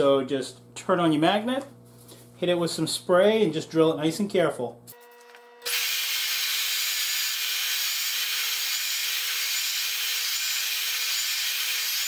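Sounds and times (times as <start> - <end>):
magnetic drill boring through steel: 5.6 - 12.0.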